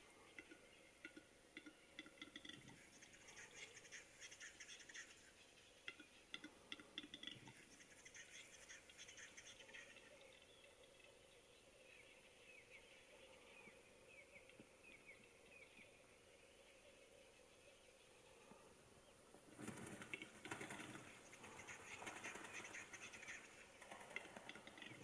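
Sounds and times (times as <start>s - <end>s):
bird clicks and scratchy rattle: 0.3s - 3.3s, 5.9s - 7.8s, 19.6s - 25.0s.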